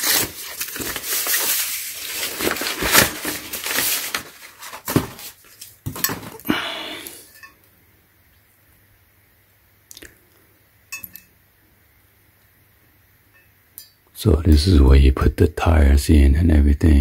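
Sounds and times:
packing paper rustling: 0.0 - 6.6.

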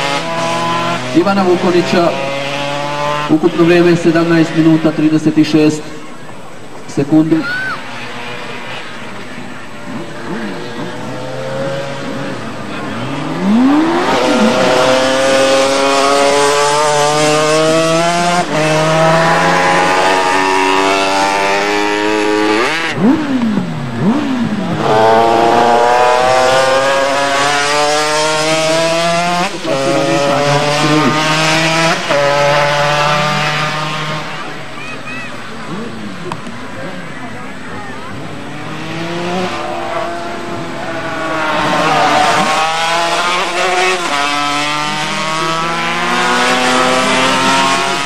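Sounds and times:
racing motorcycles accelerating: 0.0 - 48.0
motorcycle passing by: 7.6 - 37.3, 37.9 - 48.0.

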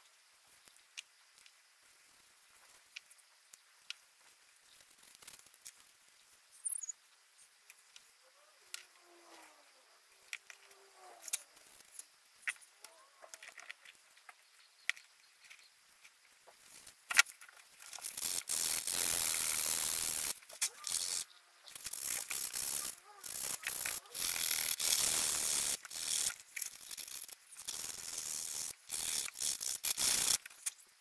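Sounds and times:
sandpaper scraping wood: 21.8 - 26.4.

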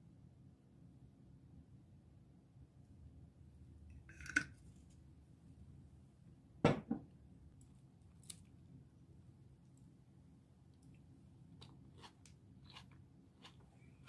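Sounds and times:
bottle knocking on table: 6.6 - 7.0.

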